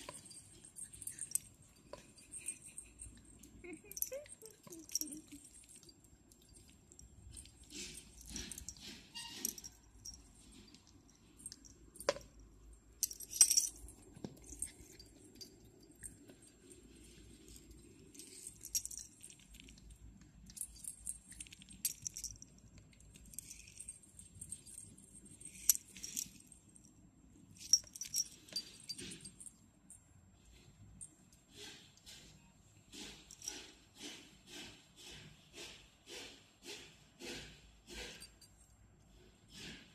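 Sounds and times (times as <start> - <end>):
collar bell jingling: 0.0 - 26.8, 27.4 - 30.0.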